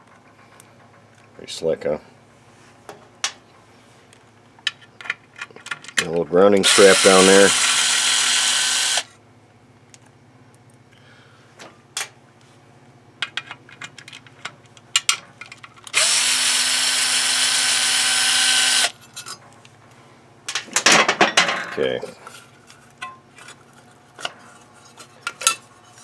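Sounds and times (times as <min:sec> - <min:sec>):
cordless drill running: 0:06.6 - 0:09.1, 0:15.9 - 0:19.0.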